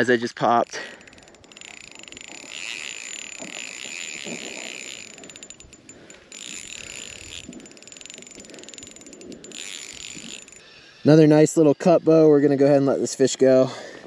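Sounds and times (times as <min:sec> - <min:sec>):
fishing reel whirring rattle: 0:00.0 - 0:10.8.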